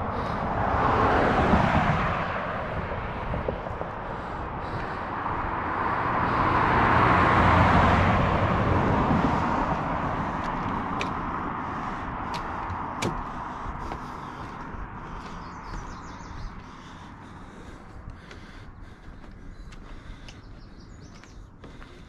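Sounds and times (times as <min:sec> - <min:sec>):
car passing by: 0:00.0 - 0:17.4.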